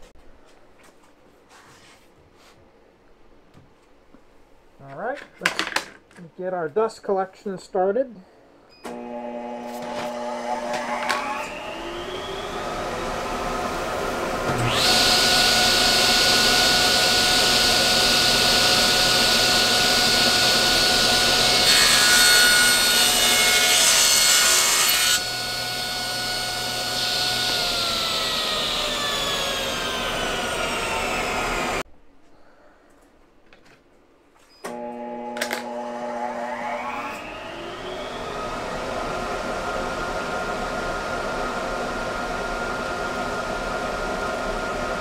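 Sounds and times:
saw ripping wooden board: 0:08.9 - 0:11.6, 0:14.5 - 0:31.8
shop machine spinning up: 0:08.9 - 0:31.8, 0:34.7 - 0:45.0
table saw running: 0:08.9 - 0:31.8, 0:34.7 - 0:45.0.

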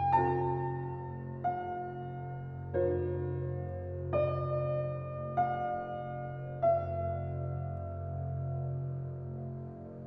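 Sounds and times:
gentle piano music: 0:00.0 - 0:10.0.

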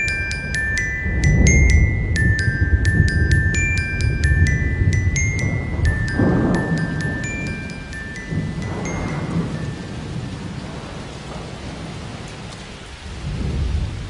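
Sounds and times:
bell-like mallet notes: 0:00.0 - 0:10.4
rolling thunder: 0:00.0 - 0:14.0
steady rain: 0:00.0 - 0:14.0.

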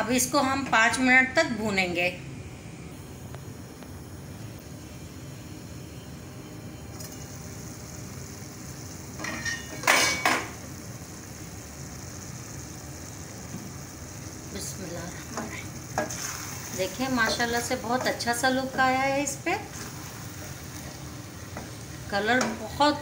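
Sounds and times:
lentils sizzling: 0:06.5 - 0:23.0.

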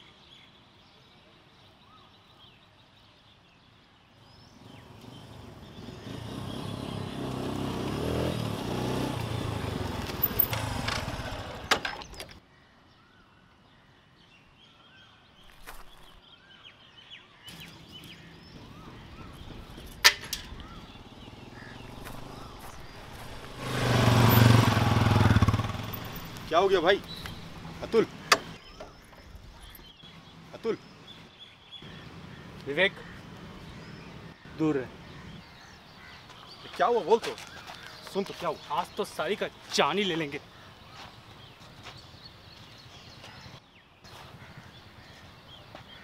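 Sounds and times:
birds chirping: 0:00.0 - 0:46.0
motorcycle engine running: 0:04.6 - 0:12.2, 0:18.5 - 0:28.6
sharp clicks: 0:25.9 - 0:27.5, 0:28.2 - 0:28.6.

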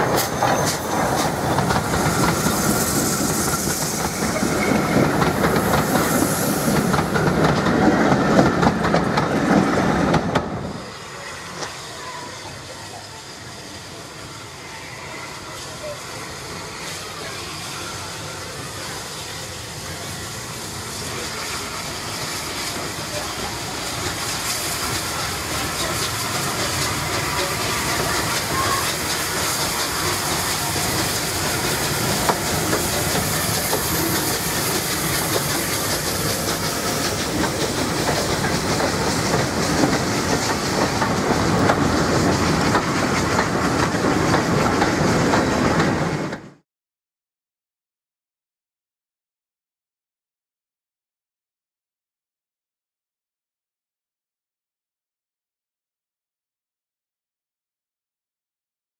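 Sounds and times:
steam hissing: 0:00.0 - 0:46.3
train wheels rattling on track: 0:00.0 - 0:46.6.

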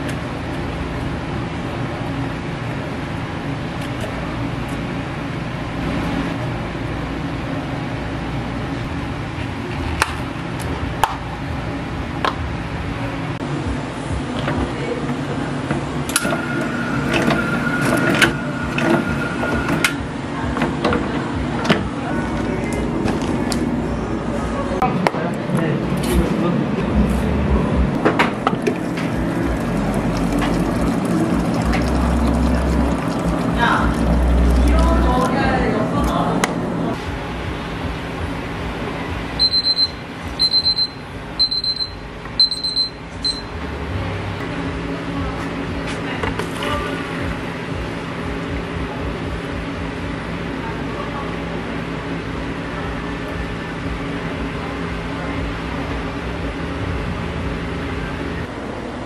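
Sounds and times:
can-sealing machine whine: 0:16.1 - 0:20.0
kitchen timer beeping: 0:39.4 - 0:43.5.

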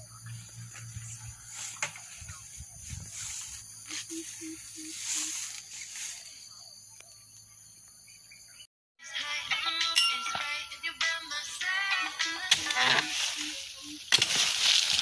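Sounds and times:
high-pitched hiss and whine: 0:00.0 - 0:06.6.

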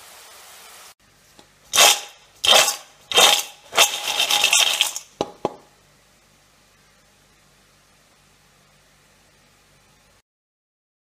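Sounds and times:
oil sizzling: 0:00.0 - 0:06.2
food rattling in metal bowl: 0:01.7 - 0:05.6.

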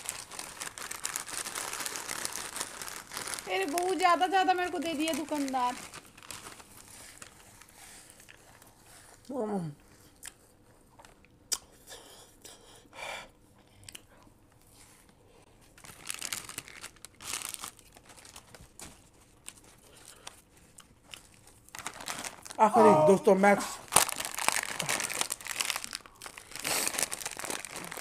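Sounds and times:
foil chip packet crinkling: 0:00.0 - 0:08.7, 0:15.5 - 0:22.7, 0:23.8 - 0:28.0
chips being chewed: 0:15.7 - 0:22.6, 0:23.8 - 0:28.0
short falling vocal sound: 0:22.7 - 0:23.2.

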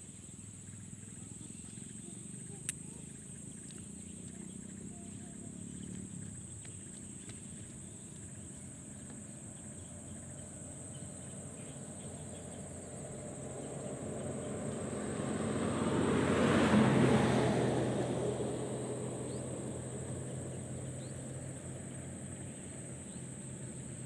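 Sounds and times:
engine rumble approaching: 0:00.0 - 0:24.0
insects trilling: 0:00.0 - 0:24.0
faint ticks: 0:01.6 - 0:04.7, 0:05.7 - 0:08.3.

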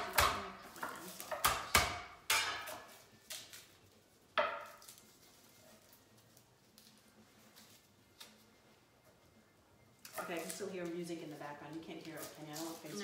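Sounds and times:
knife chopping on wooden board: 0:00.0 - 0:00.5, 0:01.3 - 0:02.8.

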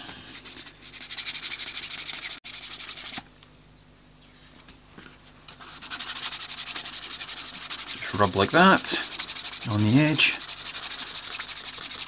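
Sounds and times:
cloth rubbing leather edge: 0:05.6 - 0:12.0.

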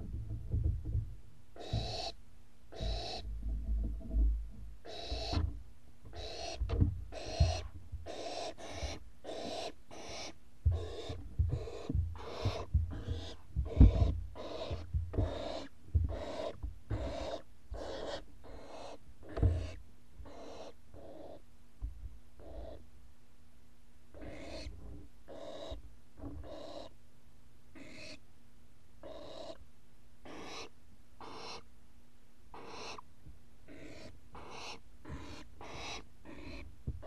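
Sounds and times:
low bumps of movement: 0:00.0 - 0:01.9, 0:10.6 - 0:17.0
owls hissing calls: 0:01.6 - 0:03.3, 0:04.8 - 0:05.4, 0:06.1 - 0:21.4, 0:22.4 - 0:22.8, 0:24.2 - 0:24.7, 0:25.3 - 0:25.8, 0:26.4 - 0:26.9, 0:27.8 - 0:28.2, 0:29.0 - 0:29.6, 0:30.2 - 0:31.7, 0:32.5 - 0:33.0, 0:33.7 - 0:36.7.

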